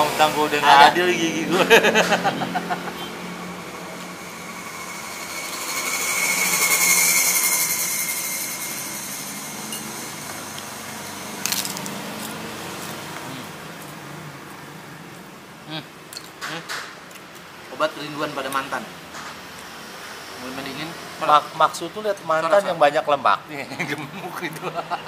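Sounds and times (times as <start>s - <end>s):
vehicle passing with whine: 0.0s - 15.2s.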